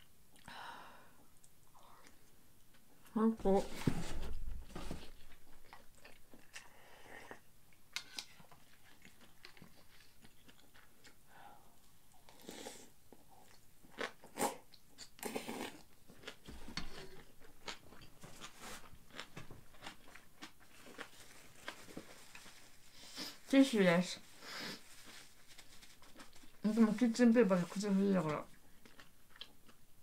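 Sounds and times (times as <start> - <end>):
wet chewing: 8.2 - 11.2, 28.6 - 29.9.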